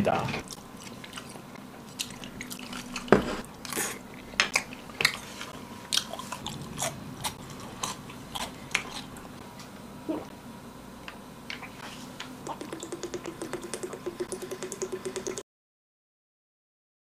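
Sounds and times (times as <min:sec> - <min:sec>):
chewing and biting food: 0:00.5 - 0:09.4.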